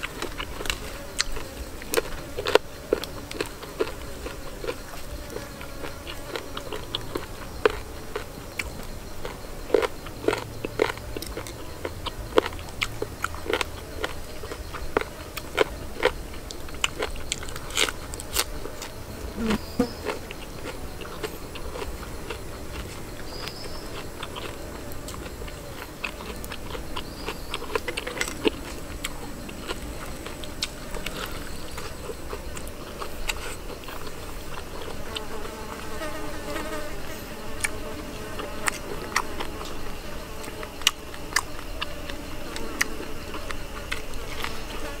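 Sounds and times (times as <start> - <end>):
person chewing chicken: 0.0 - 18.9, 19.5 - 35.3
flying insects buzzing: 0.0 - 45.0.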